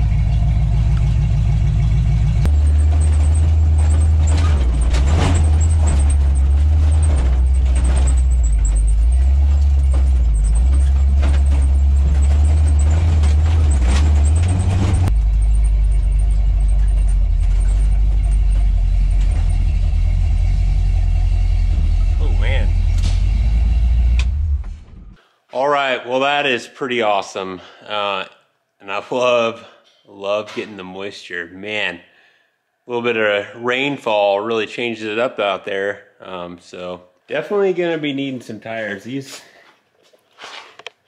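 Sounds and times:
truck engine under load: 0.0s - 25.2s.

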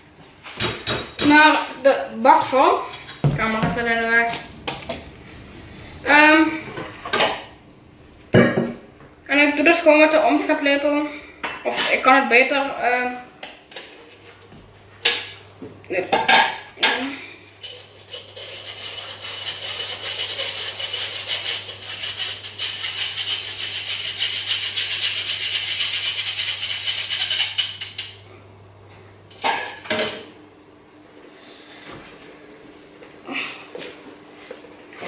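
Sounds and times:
spatula scraping a bowl: 17.6s - 28.1s.

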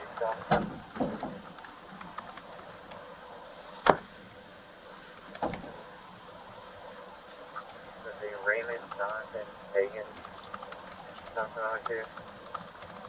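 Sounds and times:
low steady hiss: 0.0s - 13.0s
sharp knocks: 3.8s - 4.1s.

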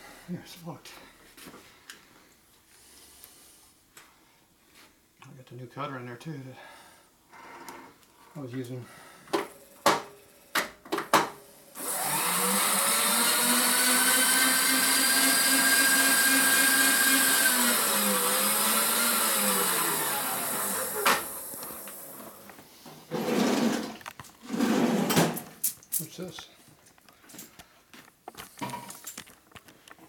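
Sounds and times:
milling machine spindle whine: 11.8s - 21.9s.

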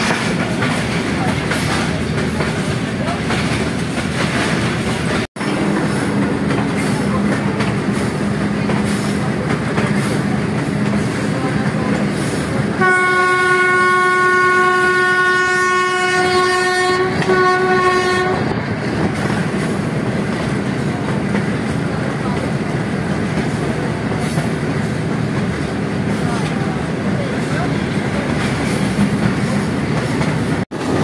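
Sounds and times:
train wheels rumbling on track: 0.0s - 31.0s
locomotive horn blasts: 12.8s - 18.5s.

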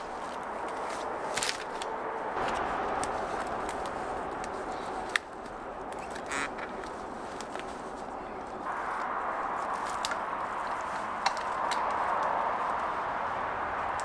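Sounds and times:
sharp wood crack: 0.0s - 12.9s
branches knocking: 0.0s - 14.0s
highway traffic hum: 0.0s - 14.0s
twigs snapping: 0.0s - 14.0s.

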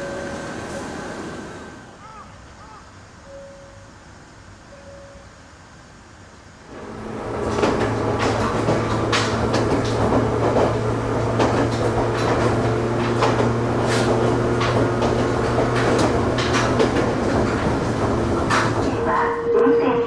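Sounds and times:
wheels rumbling on rails: 0.0s - 2.6s, 3.2s - 20.0s
train hum: 0.0s - 20.0s
sharp clicks and rattles: 7.3s - 19.1s.

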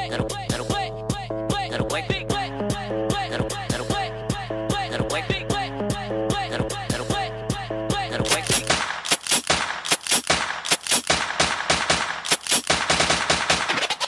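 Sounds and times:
sharp bangs: 8.4s - 14.0s.

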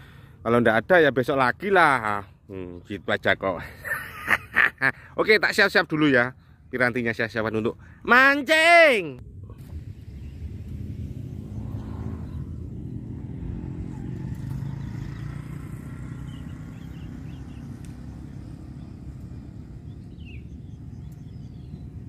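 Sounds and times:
vehicle engine passing: 9.5s - 22.0s.

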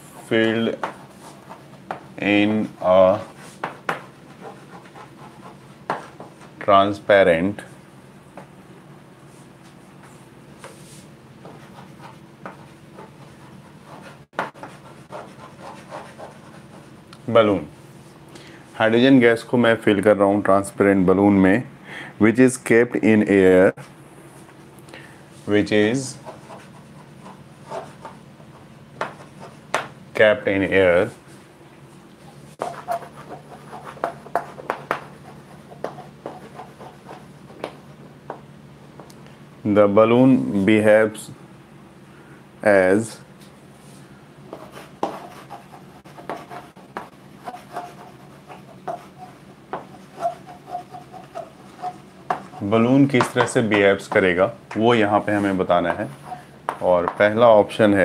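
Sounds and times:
chalk scratching on chalkboard: 0.0s - 2.1s, 3.1s - 6.6s, 9.3s - 17.0s, 26.0s - 29.9s, 32.3s - 37.8s, 44.5s - 54.2s, 55.2s - 57.2s
low steady hum: 0.0s - 58.0s.

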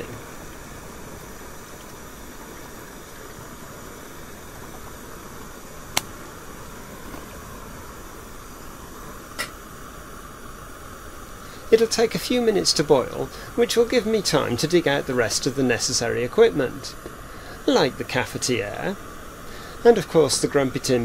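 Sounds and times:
burner rushing hiss: 0.0s - 21.0s
sharp click: 5.9s - 6.2s.

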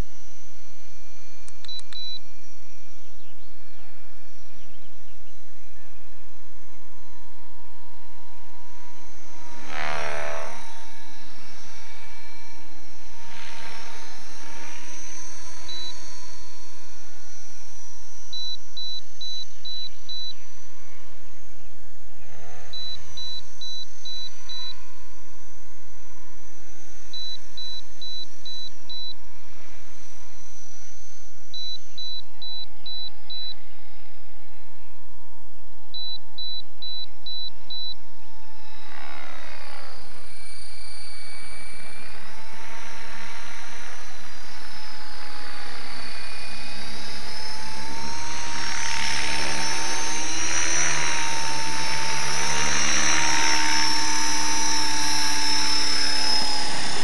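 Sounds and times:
steady electronic whine: 0.0s - 57.0s
wavering pitched sounds: 7.7s - 17.5s.

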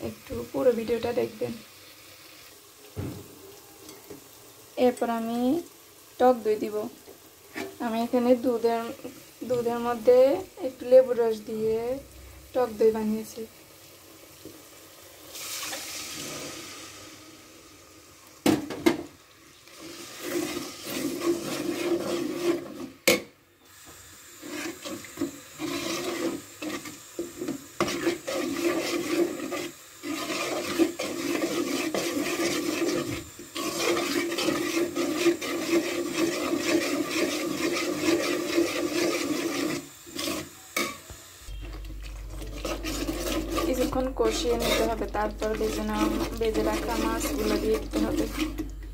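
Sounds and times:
hiss of curd in hot oil: 0.0s - 41.6s
gravy sizzling: 0.0s - 48.9s
metal spoon scraping a pot: 7.5s - 7.8s, 19.8s - 23.0s, 24.4s - 48.8s.

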